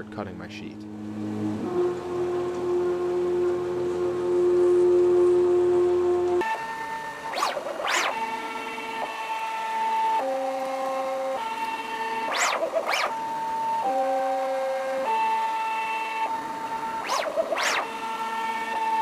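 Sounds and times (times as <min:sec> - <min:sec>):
motors whining: 0:06.4 - 0:19.0.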